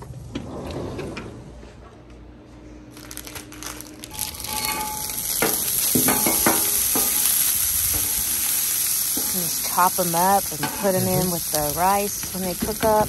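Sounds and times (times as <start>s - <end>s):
plastic bag crinkling: 2.9s - 5.8s
griddle sizzling: 3.0s - 13.0s
spatula scraping griddle: 4.2s - 13.0s.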